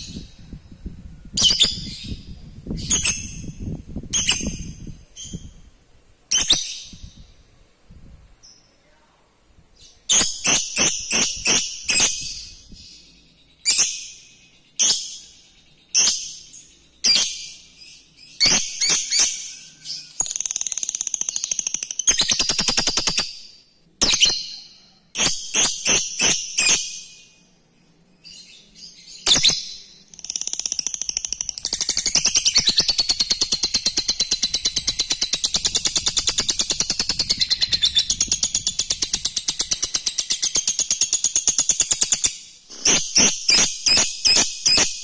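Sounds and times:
lovebird chattering: 0:10.1 - 0:12.7.

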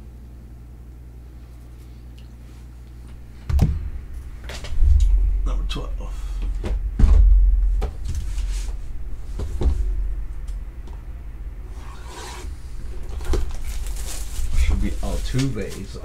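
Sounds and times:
heavy thump: 0:03.5 - 0:03.9, 0:06.4 - 0:08.5, 0:09.3 - 0:10.1
plastic shrink wrap crinkling: 0:12.9 - 0:16.0.

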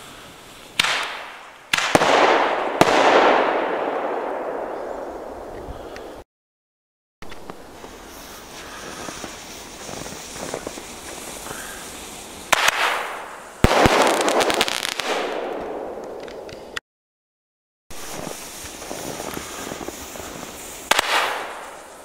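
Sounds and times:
fireworks hiss and crackle: 0:00.0 - 0:04.1, 0:07.2 - 0:16.8, 0:17.9 - 0:22.0
dense firework crackling: 0:00.0 - 0:06.2, 0:07.7 - 0:16.6, 0:17.9 - 0:22.0
firework bangs: 0:00.7 - 0:05.4, 0:07.8 - 0:16.5, 0:17.9 - 0:22.0
rushing hiss: 0:07.7 - 0:14.2, 0:17.9 - 0:22.0.

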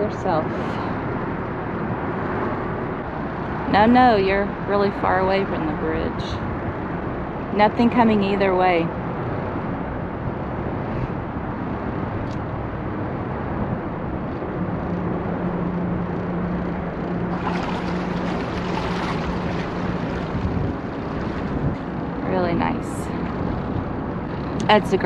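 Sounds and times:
boat engines humming: 0:00.0 - 0:25.0
wind: 0:00.0 - 0:25.0
water rushing: 0:17.1 - 0:25.0.

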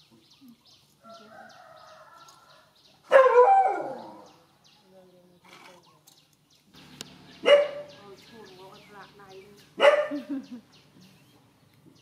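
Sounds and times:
dog howling yelp: 0:03.1 - 0:04.3.

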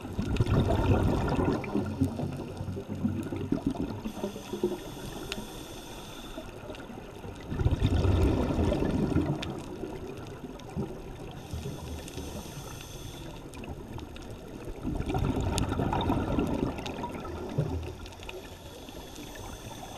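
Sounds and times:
scuba regulator bubbling exhalations: 0:00.0 - 0:06.4, 0:07.5 - 0:09.5, 0:14.8 - 0:19.9
hissing inhalations: 0:04.0 - 0:06.5, 0:11.3 - 0:13.5, 0:18.3 - 0:19.9.

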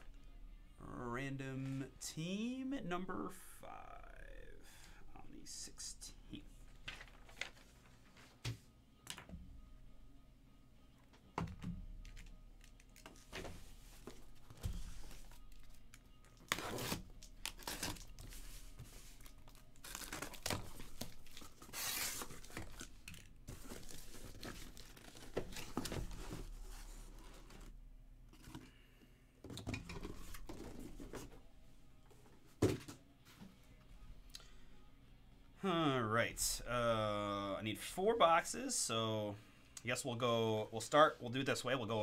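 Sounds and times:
cardboard tearing and rustling: 0:16.4 - 0:27.7.

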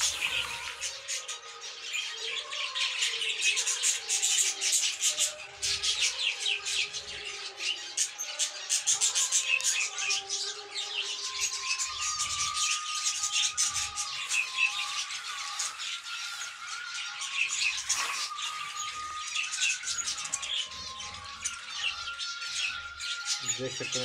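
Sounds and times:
budgerigars chattering: 0:00.0 - 0:01.3, 0:11.4 - 0:24.0.

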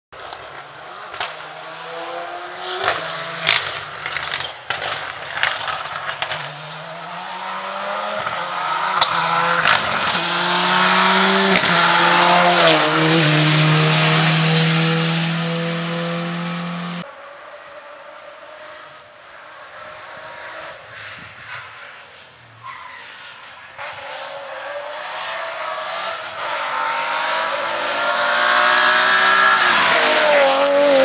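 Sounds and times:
rally car engine revving: 0:00.2 - 0:17.1, 0:23.8 - 0:31.0.

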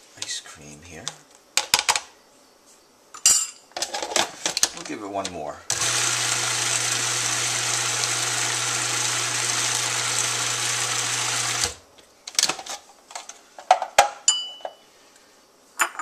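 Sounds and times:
food processor motor running: 0:05.7 - 0:11.8
ringing clink: 0:14.3 - 0:14.8.

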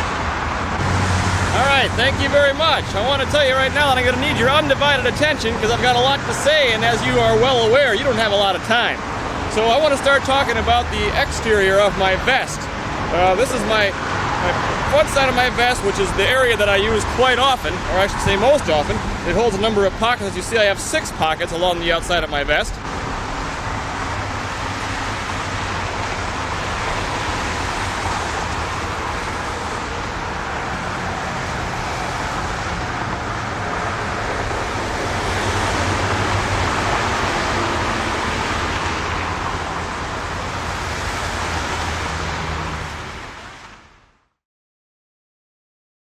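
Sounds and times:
highway traffic roar: 0:00.0 - 0:44.4.

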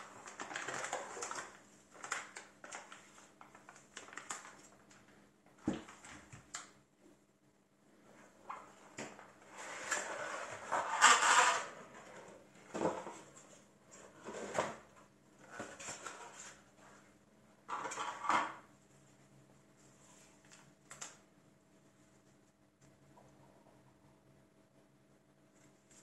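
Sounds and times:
cardboard scraping and sliding: 0:09.4 - 0:13.3, 0:14.0 - 0:14.8.

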